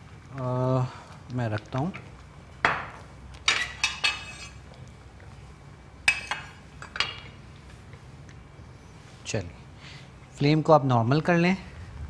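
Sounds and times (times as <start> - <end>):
metal utensils clinking on pot: 3.5 - 4.6, 6.1 - 7.3.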